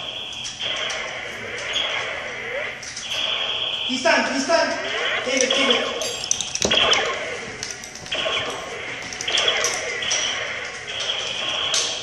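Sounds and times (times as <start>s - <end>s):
electronic laser tag chirps: 0.0s - 12.0s.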